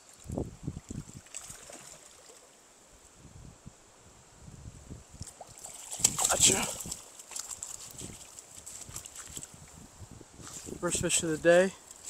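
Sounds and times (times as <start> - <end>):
quiet river water: 0.0 - 12.0
low splashes and knocks: 5.2 - 9.5.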